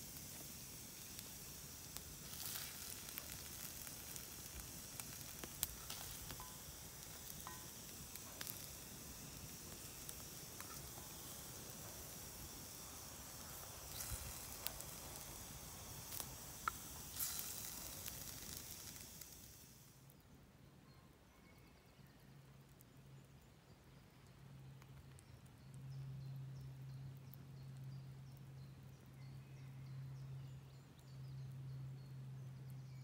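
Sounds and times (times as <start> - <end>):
campfire hissing: 0.0 - 20.2
fire crackles: 0.0 - 20.3, 22.5 - 33.0.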